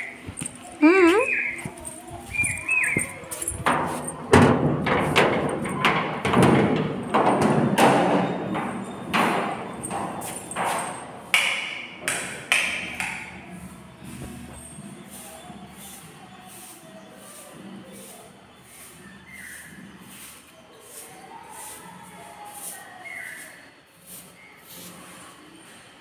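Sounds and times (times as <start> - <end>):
footsteps thudding: 0.2 - 5.2.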